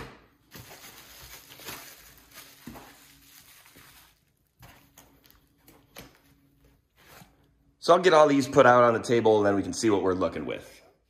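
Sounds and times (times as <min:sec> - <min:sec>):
bubble wrap crinkling: 0:00.4 - 0:07.2.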